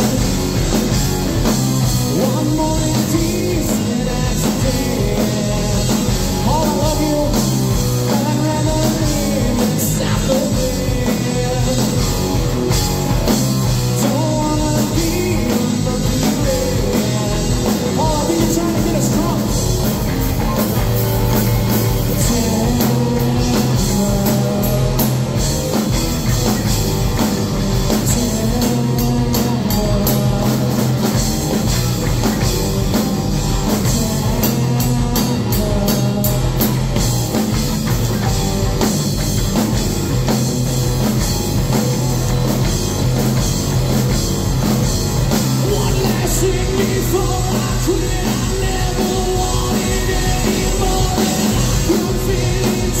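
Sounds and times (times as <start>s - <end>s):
drum kit: 0.0s - 53.0s
electric bass: 0.0s - 53.0s
electric guitar: 0.0s - 53.0s
person singing lead vocal: 1.8s - 12.7s, 13.8s - 20.6s, 21.9s - 25.4s, 27.6s - 31.4s, 32.3s - 37.0s, 45.5s - 53.0s.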